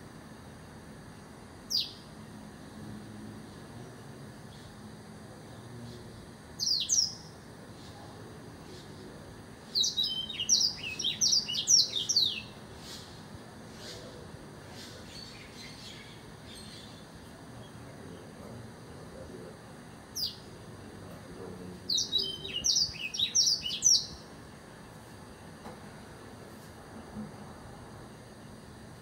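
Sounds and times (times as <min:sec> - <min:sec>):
caged canary singing: 0:01.7 - 0:02.0, 0:06.6 - 0:07.4, 0:09.7 - 0:12.6, 0:20.1 - 0:20.4, 0:21.9 - 0:24.3.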